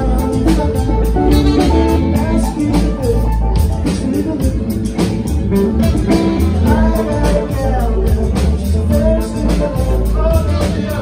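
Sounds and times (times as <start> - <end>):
saxophone: 0.0 - 3.4, 4.7 - 7.6, 9.3 - 11.0
bass: 0.0 - 11.0
drums: 0.0 - 11.0
electric guitar: 0.0 - 11.0
man singing: 0.0 - 11.0.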